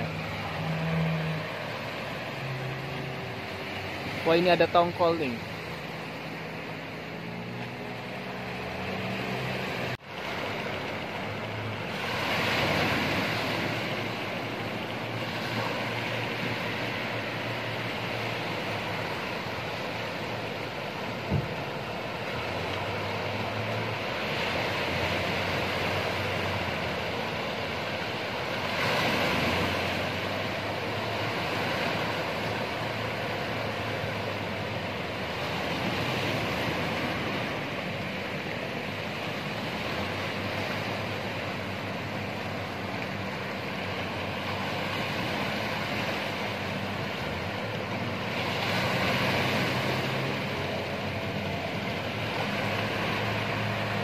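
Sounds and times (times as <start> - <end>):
ocean surf breaking: 0.0 - 54.0
outboard motor humming: 0.0 - 54.0.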